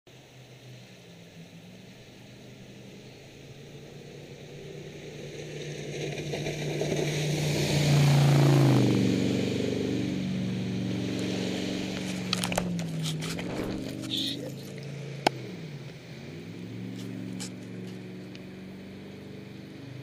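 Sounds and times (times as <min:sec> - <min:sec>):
jet boat engine passing: 0:00.1 - 0:20.0.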